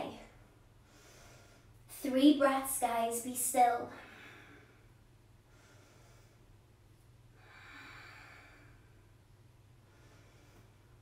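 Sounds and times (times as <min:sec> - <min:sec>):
low room hum: 0:00.0 - 0:11.0
soft breathing: 0:00.3 - 0:02.0, 0:03.9 - 0:11.0.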